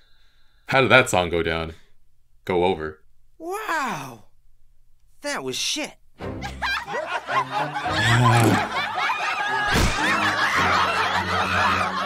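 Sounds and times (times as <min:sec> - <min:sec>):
background music: 0:06.2 - 0:12.0
cartoon voices laughing: 0:07.6 - 0:12.0.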